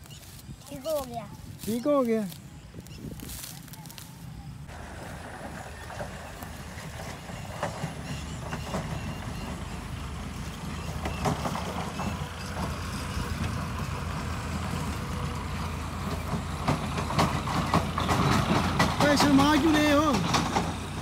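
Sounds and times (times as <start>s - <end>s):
low engine hum: 0.0s - 21.0s.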